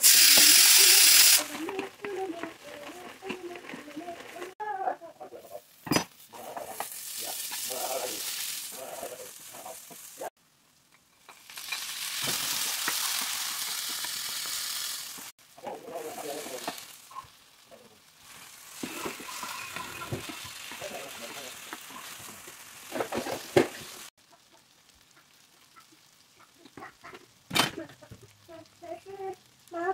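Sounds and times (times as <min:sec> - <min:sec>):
onions frying in oil: 0:00.0 - 0:29.9
wooden spatula stirring: 0:01.4 - 0:10.3, 0:15.2 - 0:24.0.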